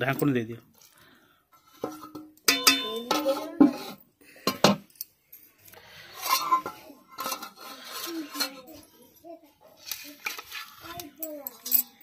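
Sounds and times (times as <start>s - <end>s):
metal cookware clattering: 1.6s - 5.1s, 6.0s - 8.9s.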